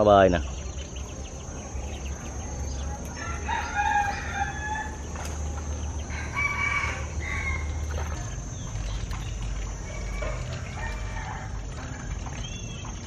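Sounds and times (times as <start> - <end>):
rooster crowing: 2.7 - 8.5, 9.7 - 12.3.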